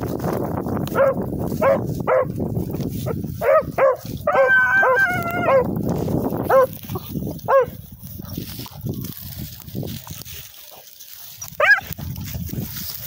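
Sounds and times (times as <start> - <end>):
hounds barking: 0.9 - 2.4, 3.0 - 5.8, 6.4 - 6.8, 7.4 - 8.8, 11.5 - 12.0
hound bawling: 4.2 - 5.7.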